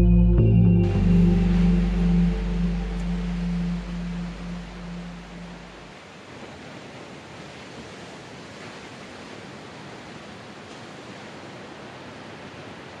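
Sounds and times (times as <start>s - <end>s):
small waves breaking on beach: 5.8s - 13.0s.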